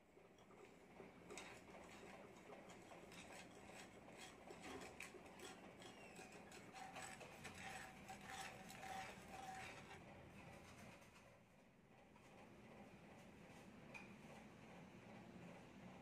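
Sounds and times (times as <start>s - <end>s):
metal stirrer scraping sugar: 0.3s - 10.7s.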